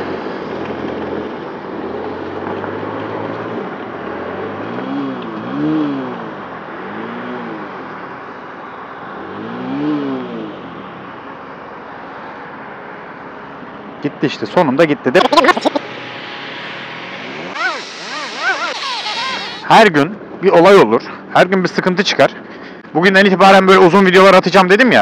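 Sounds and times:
road and wind noise: 0.0 - 25.0
motorcycle engine revving: 2.9 - 7.9, 9.2 - 10.8, 15.6 - 19.8.

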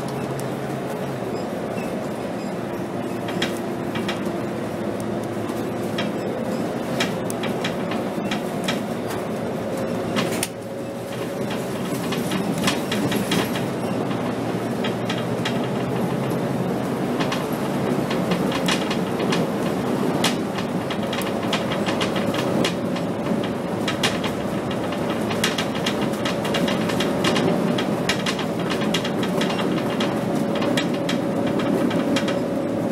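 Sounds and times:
bus body rattling and clicking: 0.0 - 32.9
bus engine drone with whine: 0.0 - 32.9.

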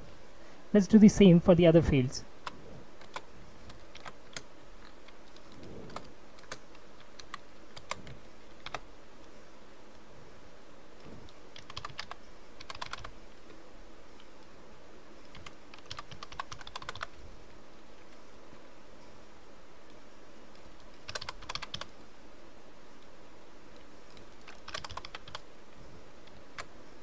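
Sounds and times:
computer keyboard typing: 2.4 - 8.8, 11.5 - 13.2, 15.2 - 17.2, 20.6 - 21.9, 24.1 - 25.5, 26.2 - 26.7.

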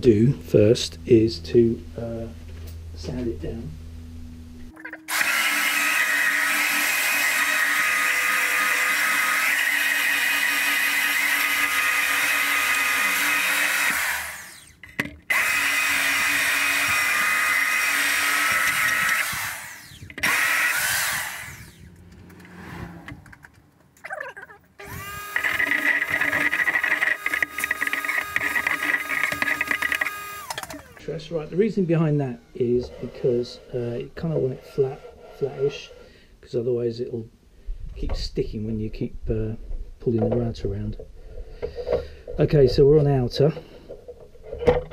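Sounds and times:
steady motor sound: 0.1 - 23.4, 24.8 - 35.4
electric sander on wood: 5.1 - 22.6, 24.8 - 35.2.

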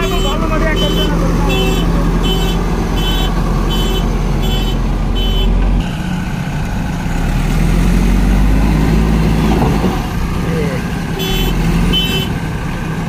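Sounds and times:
reversing alarm beeping: 0.0 - 5.6
diesel engine rumbling: 0.0 - 13.0.

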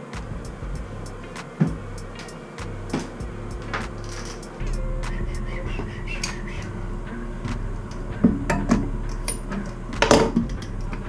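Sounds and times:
steady low hum: 0.0 - 11.0
metal clinks and knocks: 3.7 - 4.5.

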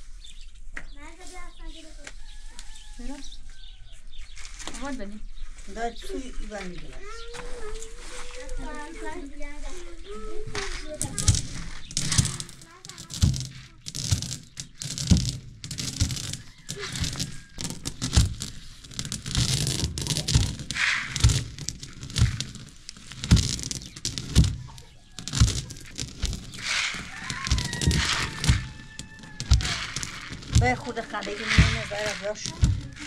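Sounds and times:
stone mill grinding grain: 10.6 - 33.0.

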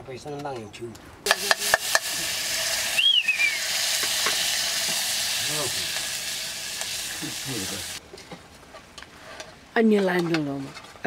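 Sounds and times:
food sizzling in pot: 1.3 - 8.0.

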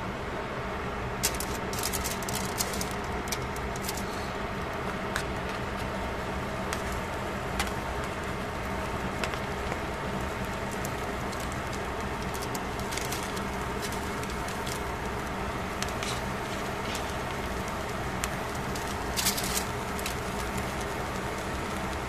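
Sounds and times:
fan humming: 0.0 - 22.0.

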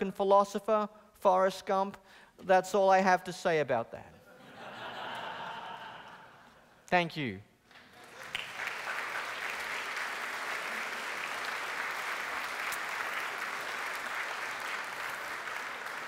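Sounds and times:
audience applauding: 7.7 - 16.0.

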